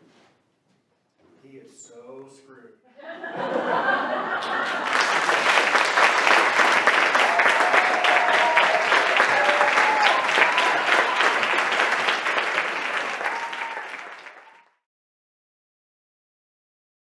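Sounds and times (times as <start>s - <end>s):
audience applauding: 3.4s - 14.8s.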